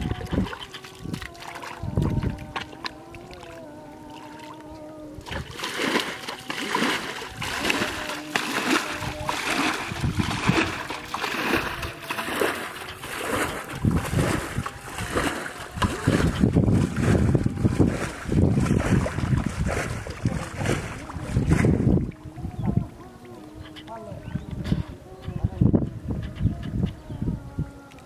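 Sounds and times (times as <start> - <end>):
muddy water splashing: 0.0 - 25.2
wind rumbling on microphone: 0.0 - 28.0.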